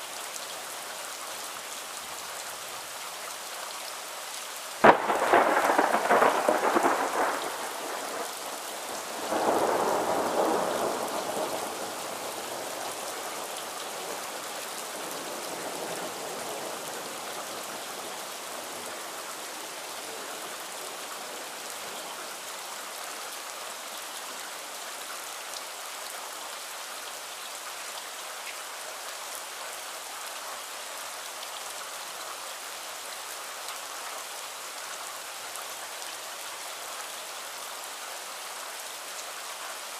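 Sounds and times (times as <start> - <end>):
steady rain: 0.0 - 39.9
thunder rolling: 4.8 - 8.3.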